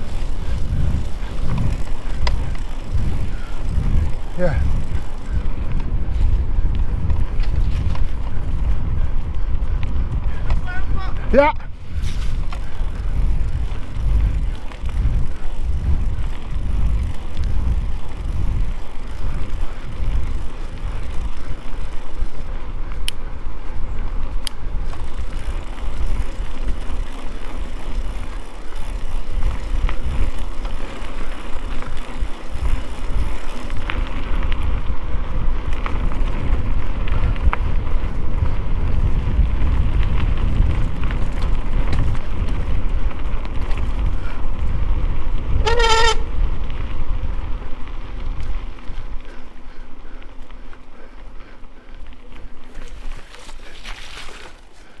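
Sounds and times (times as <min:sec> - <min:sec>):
wind on microphone: 0:00.0 - 0:49.4
tyres rumbling on trail: 0:00.0 - 0:55.0
sharp clicks: 0:23.0 - 0:23.2.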